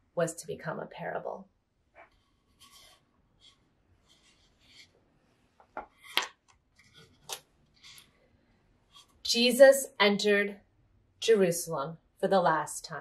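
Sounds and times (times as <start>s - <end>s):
cards tapping and scraping: 5.6s - 8.2s
paper cards rustling: 5.6s - 8.2s.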